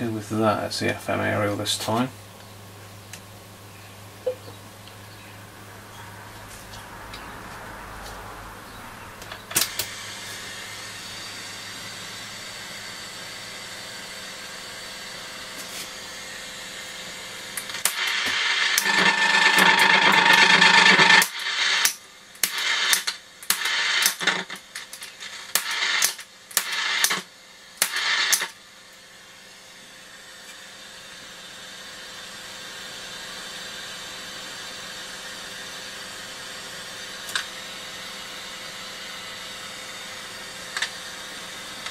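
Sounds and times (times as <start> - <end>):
radio static hiss: 17.7 - 28.6
sharp click: 27.8 - 28.5.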